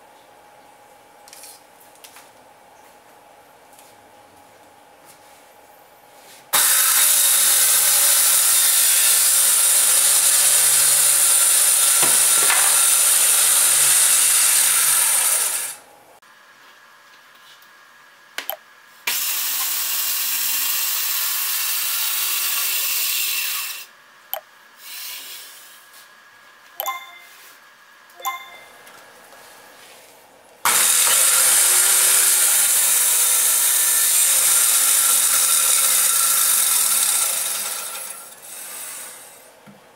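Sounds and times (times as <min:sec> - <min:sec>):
circular saw cutting wood: 0:06.6 - 0:15.8, 0:19.1 - 0:23.9, 0:30.7 - 0:39.5
saw blade winding down whine: 0:06.6 - 0:15.8, 0:30.7 - 0:39.4
clicks: 0:26.8 - 0:27.3.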